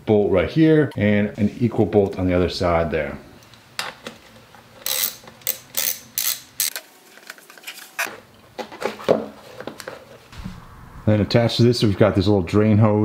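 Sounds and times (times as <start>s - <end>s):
hand ratchet clicking: 4.8s - 6.8s.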